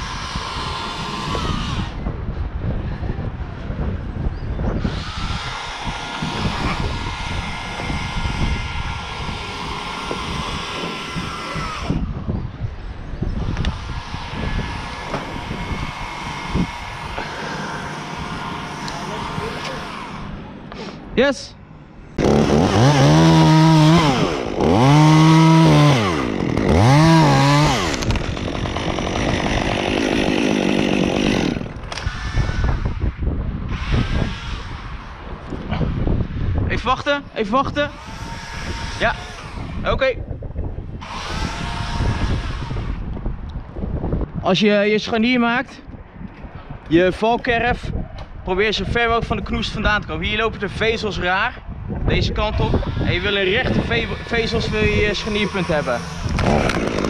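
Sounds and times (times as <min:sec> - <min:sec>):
chainsaw revving: 0:00.0 - 0:02.0, 0:04.9 - 0:12.0, 0:13.7 - 0:20.4, 0:22.2 - 0:32.8, 0:37.9 - 0:39.8, 0:41.0 - 0:43.0, 0:53.0 - 0:57.0
wind rumbling on microphone: 0:00.0 - 0:21.2, 0:21.8 - 0:57.0.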